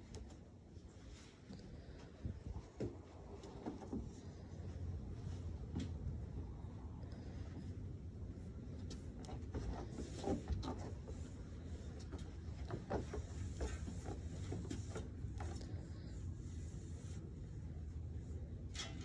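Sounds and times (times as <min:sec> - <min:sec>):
goat hooves on wooden deck: 0:08.8 - 0:15.8.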